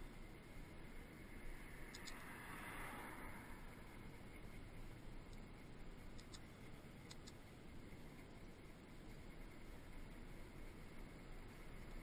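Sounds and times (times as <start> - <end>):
bicycle wind and tyre rumble: 0.0 - 12.0
light high ticks: 1.8 - 2.4, 5.3 - 8.4.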